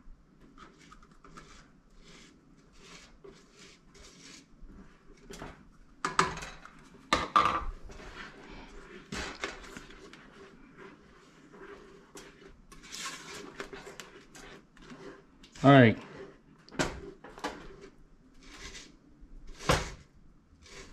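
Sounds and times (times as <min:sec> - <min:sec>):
spatula scraping a metal pot: 0:00.5 - 0:04.6, 0:07.8 - 0:20.0, 0:20.6 - 0:20.9.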